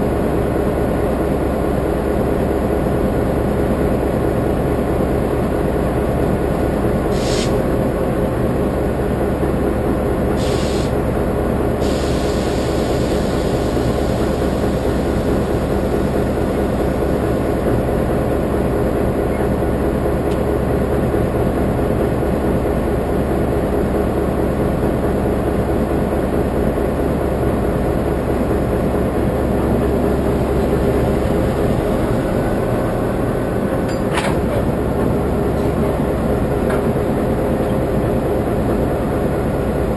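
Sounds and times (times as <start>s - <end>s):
diesel locomotive idling: 0.0s - 39.9s
short air hisses: 7.1s - 7.6s, 10.4s - 11.0s, 11.8s - 14.6s.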